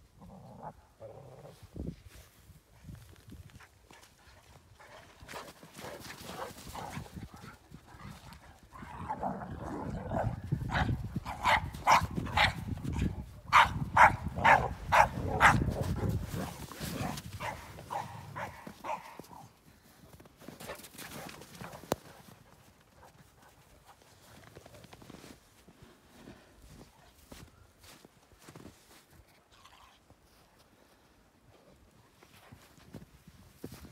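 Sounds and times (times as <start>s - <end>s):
dogs barking: 10.7s - 12.7s, 13.5s - 16.2s, 17.4s - 19.4s.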